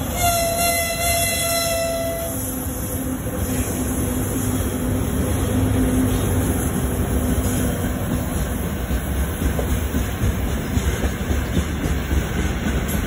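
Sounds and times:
train rumbling by: 0:00.0 - 0:13.0
locomotive horn blast: 0:00.1 - 0:02.5.

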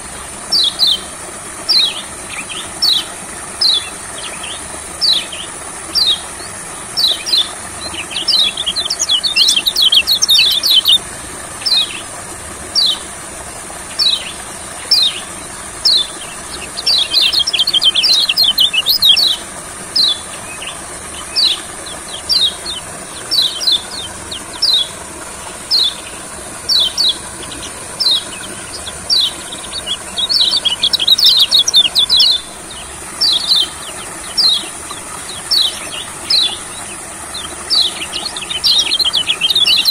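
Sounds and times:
bird twittering song: 0:00.0 - 0:13.2, 0:13.8 - 0:39.9
bird chirping: 0:06.9 - 0:11.0, 0:11.6 - 0:12.1, 0:13.9 - 0:39.9.

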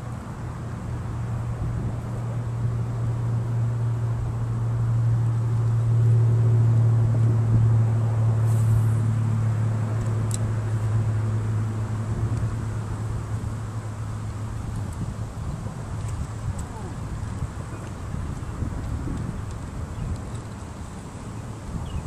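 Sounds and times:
engine humming: 0:00.0 - 0:22.0.

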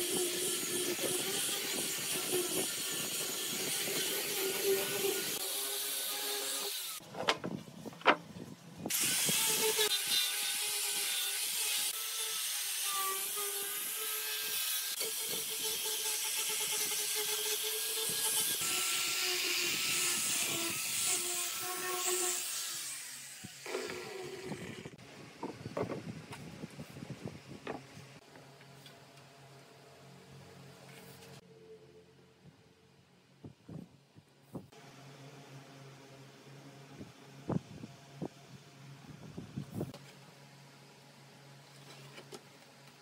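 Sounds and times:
angle grinder sanding wood: 0:00.0 - 0:07.0, 0:08.9 - 0:25.0.

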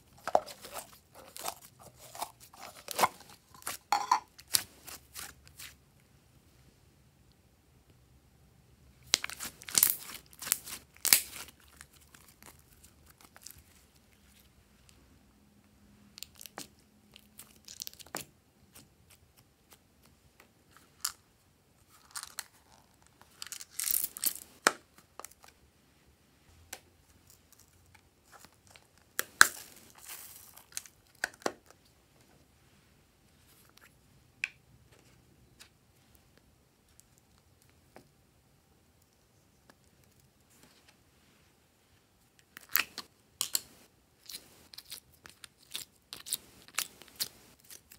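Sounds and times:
hands squeezing sticky slime: 0:09.0 - 0:14.4.

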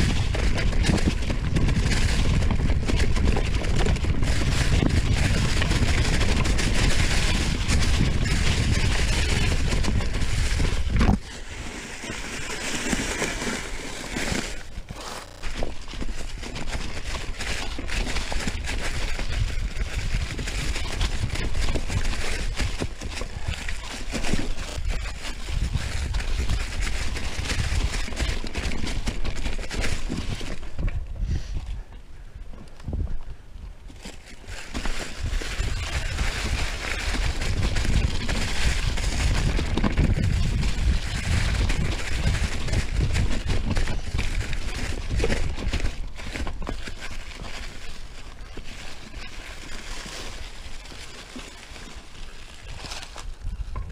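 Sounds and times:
bike knocks and rattles: 0:00.0 - 0:11.4
bike rattling and knocking: 0:00.0 - 0:31.0, 0:33.9 - 0:53.9
tyres crunching over leaves and rocks: 0:00.0 - 0:31.0, 0:33.9 - 0:53.9
wind on microphone: 0:00.0 - 0:53.9.

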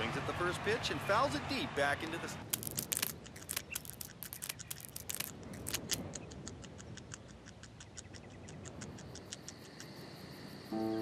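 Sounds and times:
rapid sharp clicks: 0:02.4 - 0:10.0.

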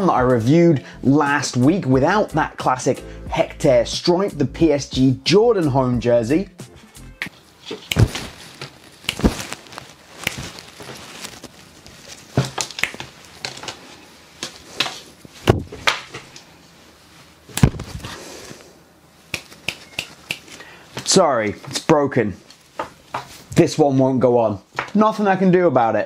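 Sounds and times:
cloth rustling: 0:06.7 - 0:21.6, 0:22.4 - 0:23.6.

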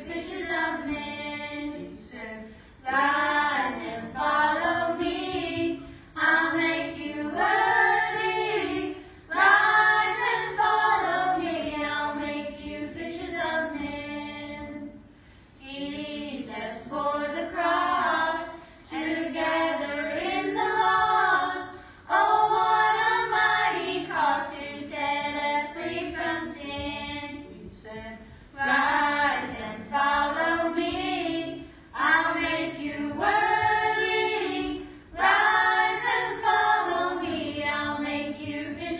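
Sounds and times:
children singing a worship song: 0:00.0 - 0:38.9.

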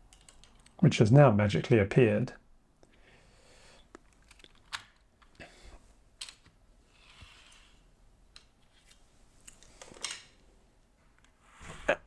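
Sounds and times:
small plastic clicks: 0:00.1 - 0:00.8, 0:03.9 - 0:05.4.

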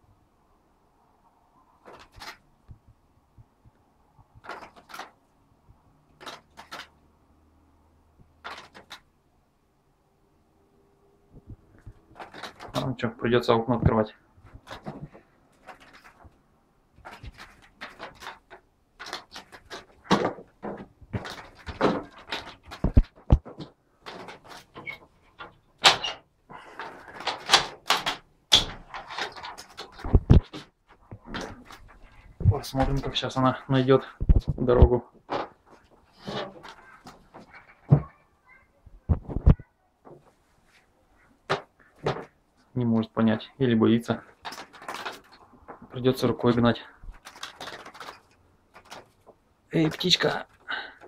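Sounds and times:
bird scrabbling on frame: 0:01.8 - 0:02.5, 0:04.4 - 0:05.2, 0:06.2 - 0:07.0, 0:08.4 - 0:09.1, 0:11.8 - 0:12.8, 0:14.4 - 0:33.2, 0:34.0 - 0:38.2, 0:44.3 - 0:49.4
wooden window sash rattling: 0:04.4 - 0:05.2, 0:11.8 - 0:13.0, 0:14.4 - 0:38.2, 0:44.2 - 0:51.0
bird wings fluttering against window: 0:06.2 - 0:06.9, 0:08.4 - 0:09.1, 0:17.0 - 0:20.2, 0:21.1 - 0:25.6, 0:47.0 - 0:49.3.

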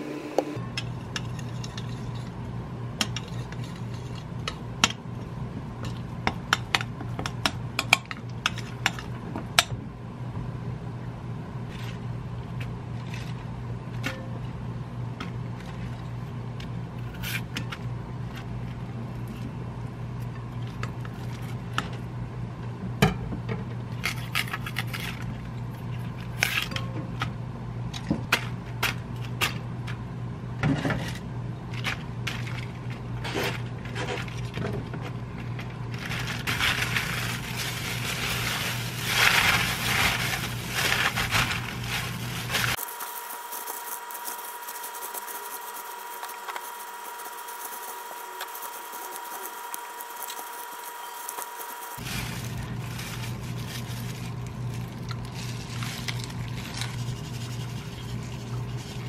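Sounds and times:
cabbage pieces dropped rustling: 0:35.9 - 0:43.2, 0:51.2 - 0:57.0
gloved hands tossing cabbage: 0:35.9 - 0:59.0.

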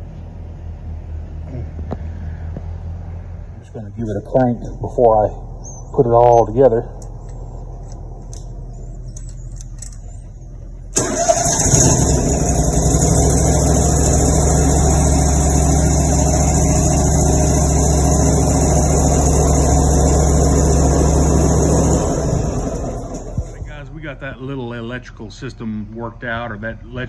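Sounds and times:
mower engine running: 0:04.2 - 0:23.8.

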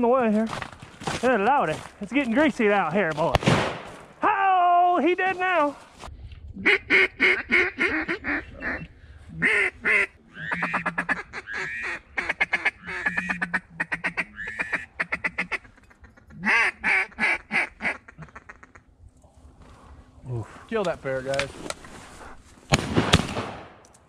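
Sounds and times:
duck call quacking: 0:06.6 - 0:18.8.

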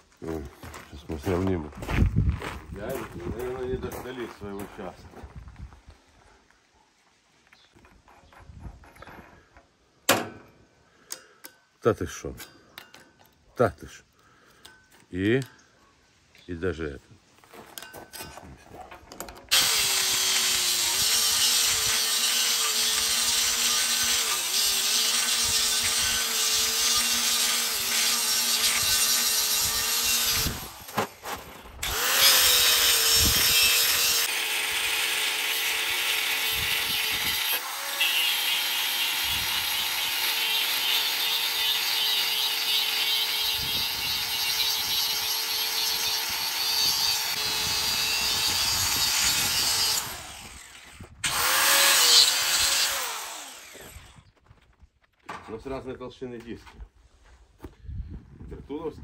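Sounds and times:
angle grinder cutting steel: 0:19.5 - 0:30.9, 0:31.8 - 0:54.2.

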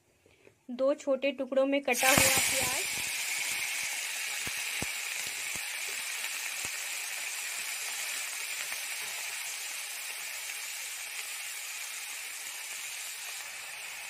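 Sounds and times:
onion sizzling in hot oil: 0:01.9 - 0:14.0
sharp oil pops: 0:02.0 - 0:06.0.

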